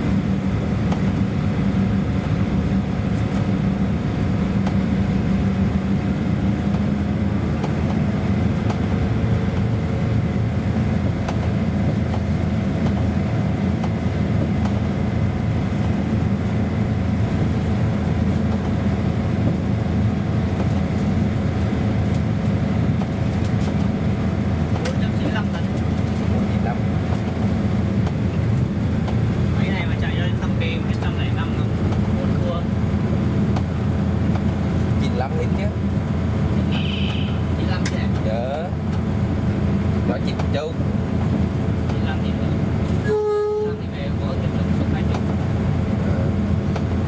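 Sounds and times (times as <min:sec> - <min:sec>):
passenger train rumbling on track: 0:00.0 - 0:47.0.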